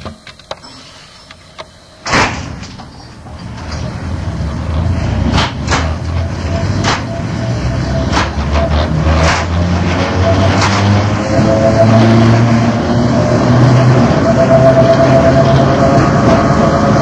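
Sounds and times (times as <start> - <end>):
electric train rumbling: 0.0 - 17.0
sharp clunk: 2.0 - 2.9, 5.3 - 6.0, 6.8 - 7.2.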